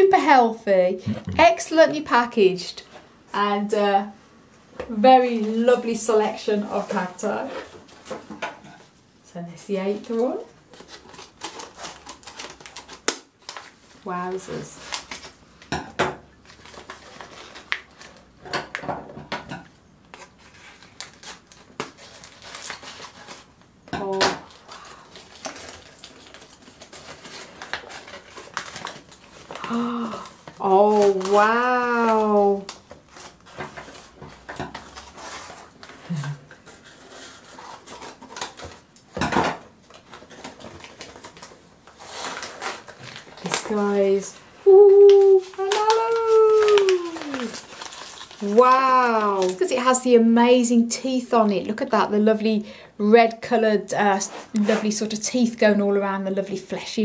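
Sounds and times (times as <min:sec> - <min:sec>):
packaging rustling and crinkling: 0:09.8 - 0:15.7, 0:16.3 - 0:19.2, 0:20.0 - 0:51.2, 0:54.0 - 0:56.6.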